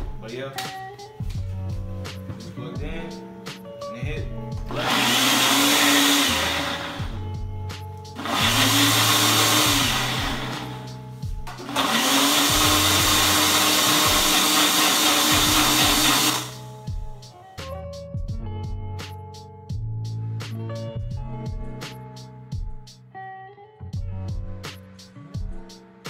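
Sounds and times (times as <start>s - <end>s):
blender motor whine: 4.7s - 7.2s, 8.2s - 10.9s, 11.5s - 16.7s.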